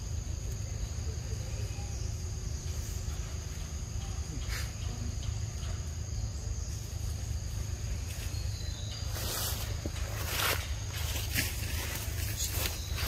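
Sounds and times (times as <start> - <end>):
insects droning: 0.0 - 13.0
faint rustle: 6.7 - 13.0.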